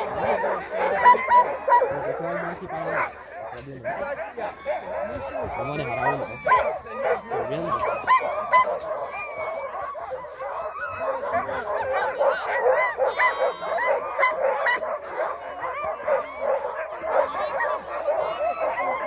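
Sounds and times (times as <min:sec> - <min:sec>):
many dogs barking and yelping: 0:00.0 - 0:19.0.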